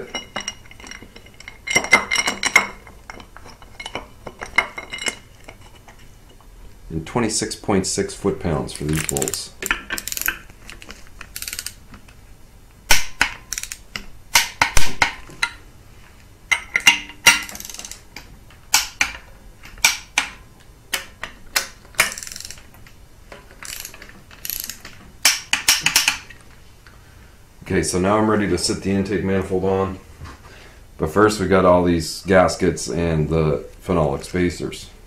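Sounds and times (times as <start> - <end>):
ratchet wrench clicking: 8.9 - 11.8, 13.0 - 14.6, 16.8 - 18.1, 21.6 - 22.7, 23.6 - 26.2.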